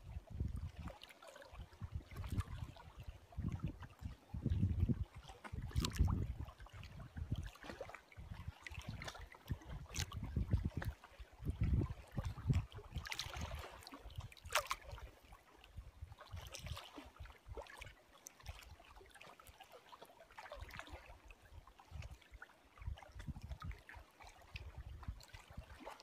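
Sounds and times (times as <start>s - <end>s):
wind on microphone: 0.0s - 15.0s, 22.8s - 25.9s
lake water lapping: 0.0s - 26.0s.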